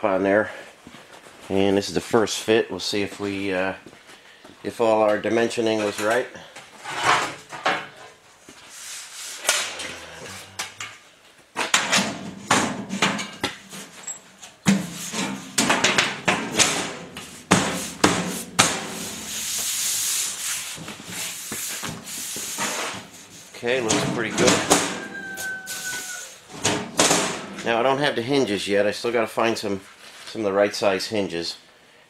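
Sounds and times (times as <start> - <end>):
metal knocks and clanks: 11.6 - 19.3, 23.7 - 25.9, 26.5 - 27.7.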